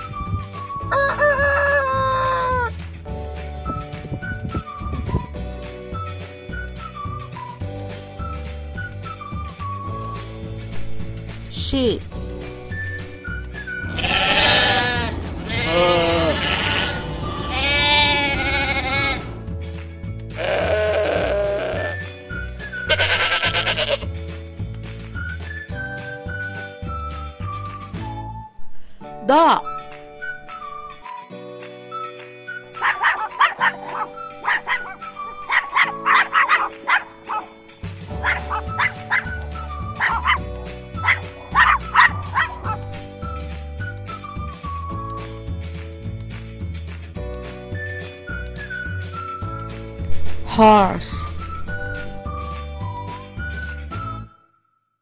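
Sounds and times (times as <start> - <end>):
background music: 0.0 - 54.6
sheep bleating: 13.8 - 19.4, 20.4 - 22.0, 22.9 - 24.1
small dog yapping: 32.8 - 37.4, 38.2 - 39.3, 40.0 - 40.4, 41.0 - 42.8.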